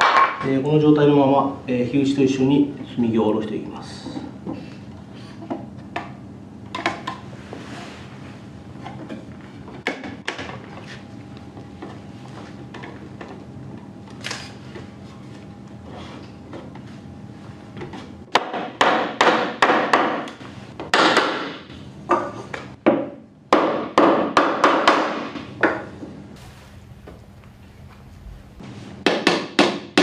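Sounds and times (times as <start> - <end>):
hammer striking wooden timbers: 18.3 - 25.5, 29.0 - 30.0.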